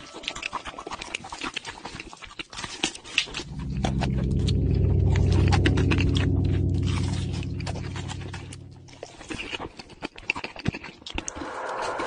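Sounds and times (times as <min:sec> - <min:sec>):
wet chewing and smacking: 0:00.2 - 0:02.9
loud low hum: 0:03.4 - 0:09.6.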